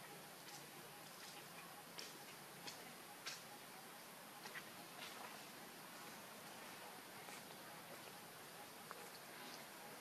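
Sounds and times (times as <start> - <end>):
background hiss: 0.0 - 10.0.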